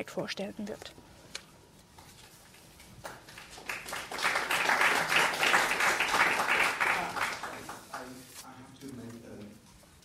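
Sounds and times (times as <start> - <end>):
audience applauding: 3.0 - 8.2.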